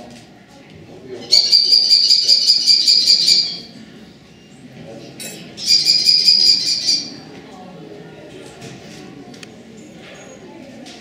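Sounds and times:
kestrel shrill killy call: 1.3s - 3.7s, 5.6s - 7.2s.

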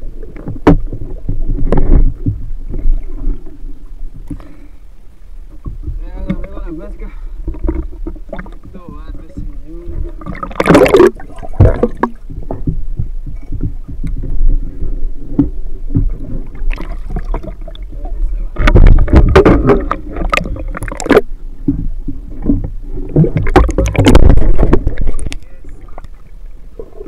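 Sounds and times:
water sloshing and splashing: 0.0s - 27.0s
muffled underwater noise: 5.8s - 12.6s, 14.1s - 21.2s, 22.3s - 27.0s.

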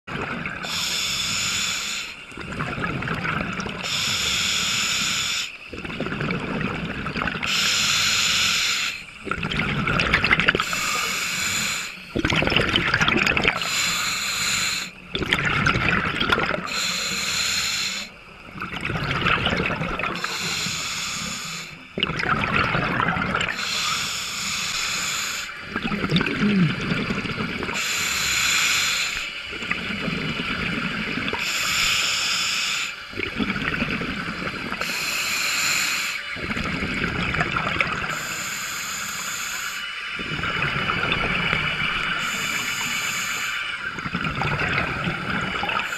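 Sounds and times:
regulator hissing inhales: 0.6s - 2.2s, 3.8s - 5.6s, 7.5s - 9.1s, 10.6s - 12.1s, 13.6s - 15.0s, 16.7s - 18.2s, 20.2s - 21.8s, 23.5s - 25.6s, 27.8s - 29.4s, 31.4s - 33.0s, 34.8s - 36.4s, 38.1s - 40.0s, 42.0s - 43.8s
bubbling exhales underwater: 2.3s - 4.3s, 5.7s - 7.8s, 9.2s - 11.1s, 11.8s - 13.8s, 14.8s - 16.9s, 18.4s - 20.6s, 21.8s - 24.0s, 25.6s - 27.9s, 33.1s - 35.0s, 36.4s - 38.3s, 40.2s - 43.2s, 43.8s - 45.9s.

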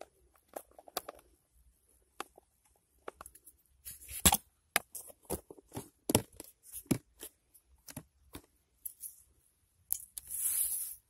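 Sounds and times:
plastic handling clicks and crackles: 0.0s - 1.4s, 2.1s - 3.6s.

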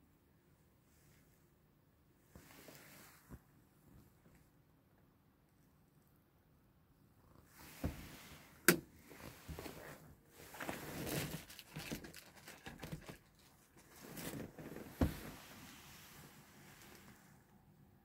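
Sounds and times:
crinkly rustling: 9.1s - 17.4s.

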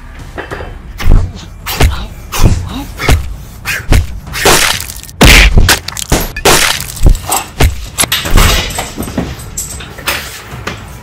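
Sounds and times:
bodies and objects slamming: 3.9s - 9.3s.

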